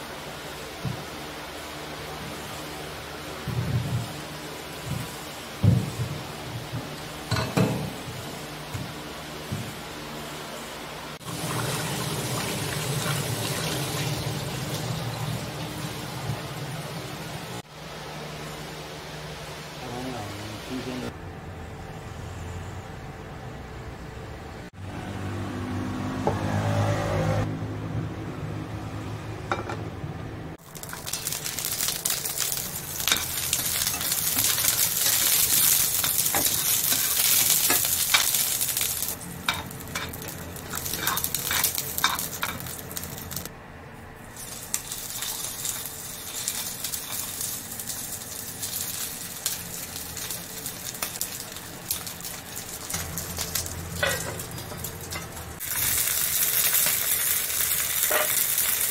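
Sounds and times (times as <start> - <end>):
food sizzling in hot oil: 11.2 - 17.6, 30.6 - 43.5, 44.3 - 58.9.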